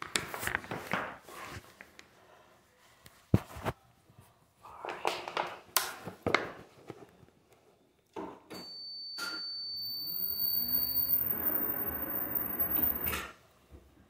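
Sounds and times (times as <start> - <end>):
steady high beep: 8.6 - 13.2
stair lift motor winding up: 10.0 - 13.2.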